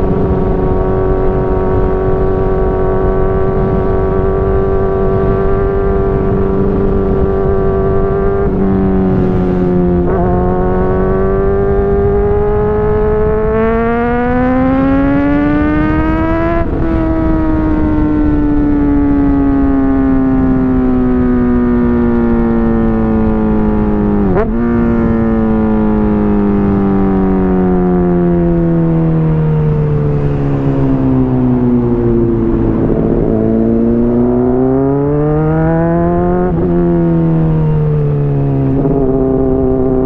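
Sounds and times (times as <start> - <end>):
motorcycle engine while riding: 0.0 - 40.0
wind rush: 0.0 - 40.0.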